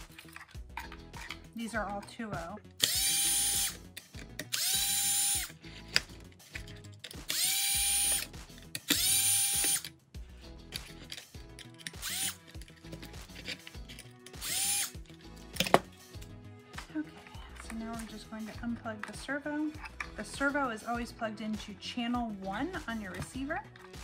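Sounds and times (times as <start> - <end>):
cordless drill whining: 2.8 - 3.8, 4.4 - 6.0, 7.3 - 9.9, 11.9 - 12.5, 14.3 - 15.0.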